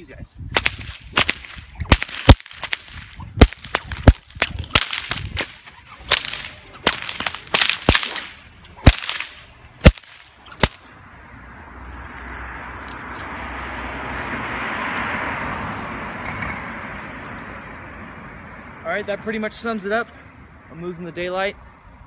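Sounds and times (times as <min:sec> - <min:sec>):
whip cracking: 0:00.5 - 0:10.9
swish of swinging whip: 0:00.5 - 0:11.0
approaching vehicle rushing: 0:10.9 - 0:19.4.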